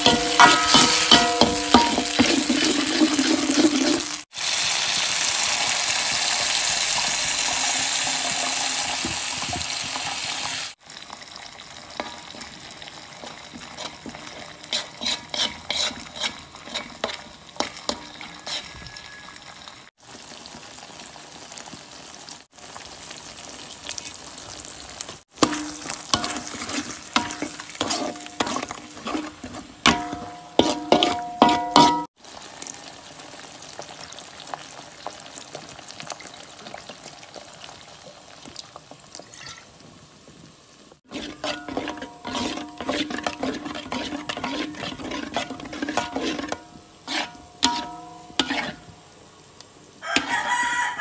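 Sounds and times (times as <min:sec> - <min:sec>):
metal spoon scraping a pan: 0:00.0 - 0:04.3, 0:13.2 - 0:19.2, 0:25.4 - 0:32.1, 0:41.1 - 0:49.0, 0:50.1 - 0:50.6
paste sizzling in a pan: 0:00.0 - 0:51.0.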